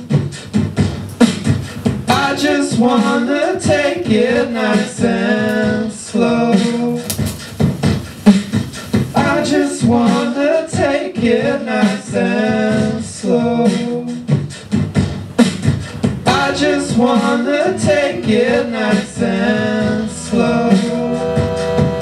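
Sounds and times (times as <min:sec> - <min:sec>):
beatbox clicking percussion: 0:00.0 - 0:22.0
person singing wordlessly: 0:02.1 - 0:07.4, 0:08.3 - 0:14.3, 0:16.2 - 0:22.0.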